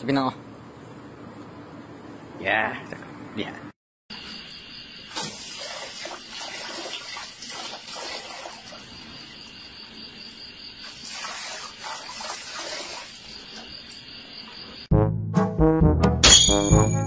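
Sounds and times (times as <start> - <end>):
water splashing into metal bowl: 5.1 - 9.0, 10.9 - 13.5.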